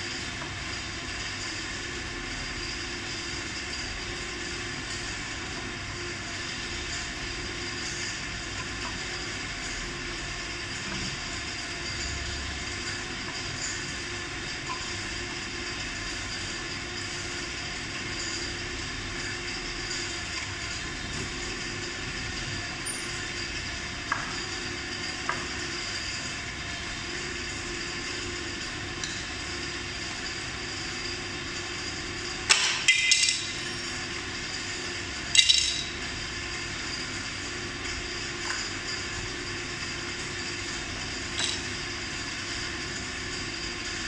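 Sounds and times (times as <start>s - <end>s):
steady background hum: 0.0s - 44.0s
metal screws clinking on floor: 22.8s - 23.1s.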